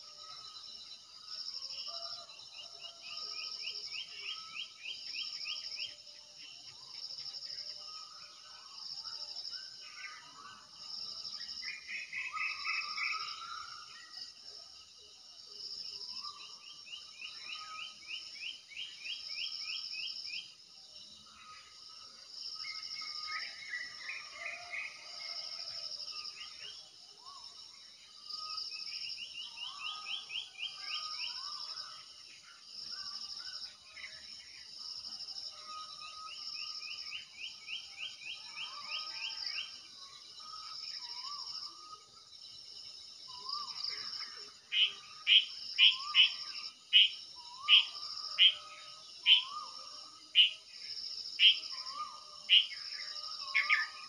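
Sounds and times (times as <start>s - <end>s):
birds singing: 47.0s - 50.6s, 51.4s - 54.0s.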